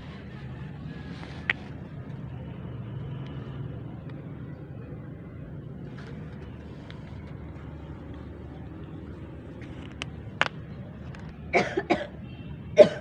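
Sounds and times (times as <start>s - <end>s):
person coughing: 11.5s - 12.2s, 12.8s - 13.0s.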